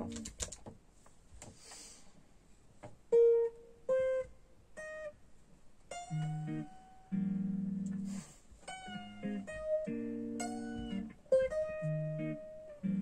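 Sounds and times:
electric guitar single notes: 5.9s - 13.0s.

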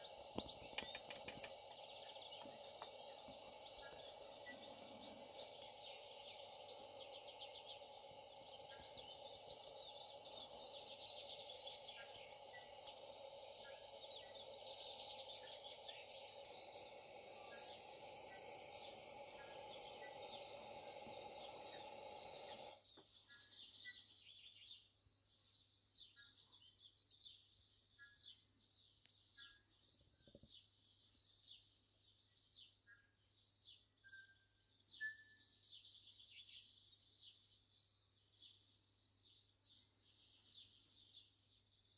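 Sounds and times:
lantern burner hissing: 0.0s - 22.8s
faint bird chirps: 0.0s - 41.9s.

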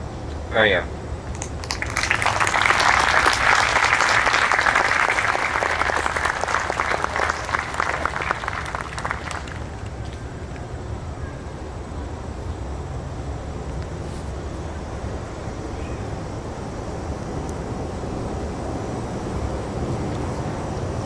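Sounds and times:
audience applauding: 1.3s - 10.7s.

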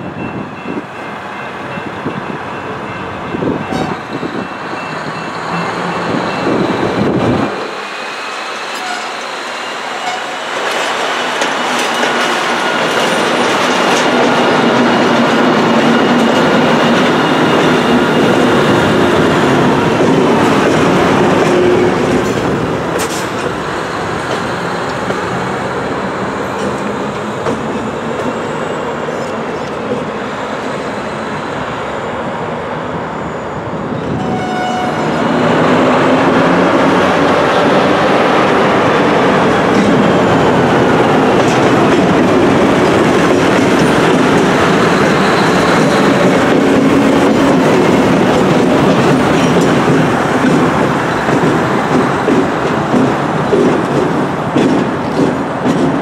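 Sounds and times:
steel wheels clacking over rail joints: 8.7s - 28.4s, 39.2s - 56.0s.

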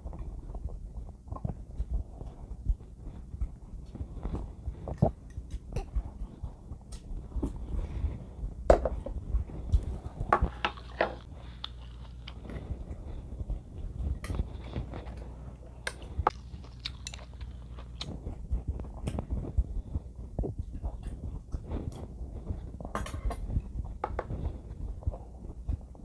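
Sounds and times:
person chewing: 9.6s - 22.9s.

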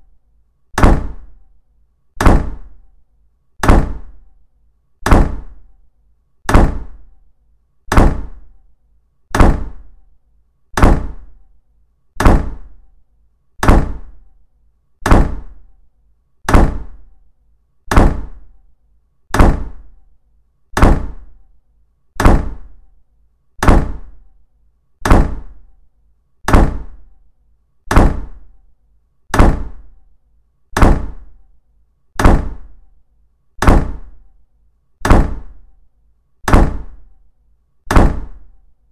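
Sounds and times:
deep thud: 0.8s - 1.3s, 2.2s - 2.7s, 3.6s - 4.1s, 5.0s - 5.6s, 6.5s - 7.0s, 7.9s - 8.4s, 9.3s - 9.8s, 10.8s - 11.3s, 12.2s - 12.7s, 13.6s - 14.1s, 15.0s - 15.6s, 16.5s - 17.0s, 17.9s - 18.4s, 19.3s - 19.8s, 20.8s - 21.3s, 22.2s - 22.7s, 23.6s - 24.1s, 25.0s - 25.5s, 26.5s - 27.0s, 27.9s - 28.4s, 29.3s - 29.8s, 30.8s - 31.3s, 32.2s - 32.7s, 33.6s - 34.1s, 35.0s - 35.6s, 36.5s - 37.0s, 37.9s - 38.4s.

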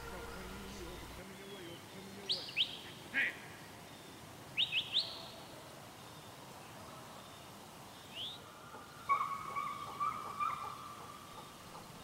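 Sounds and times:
hounds baying: 9.1s - 11.2s.

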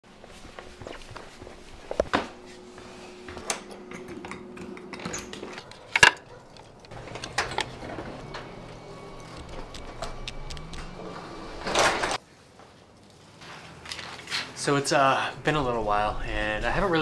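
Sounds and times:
hard objects clattering: 3.9s - 8.4s.

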